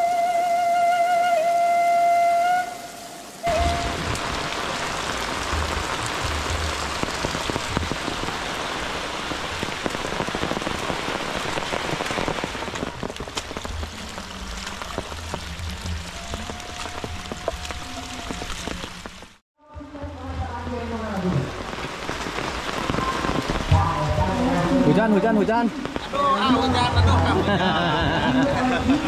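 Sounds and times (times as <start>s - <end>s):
flute-like tone: 0.0s - 4.8s
rain falling: 0.0s - 29.0s.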